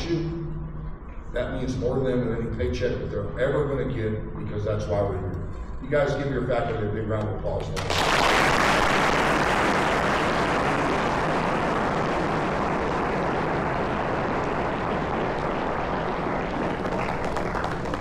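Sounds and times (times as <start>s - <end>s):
audience applauding: 7.8s - 18.0s.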